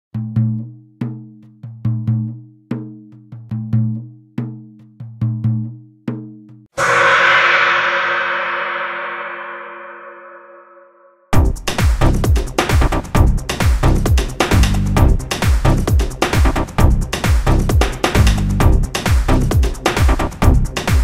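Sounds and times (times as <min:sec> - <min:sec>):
deep ringing drum beat: 0:06.8 - 0:10.7
loud gong crash: 0:06.8 - 0:11.1.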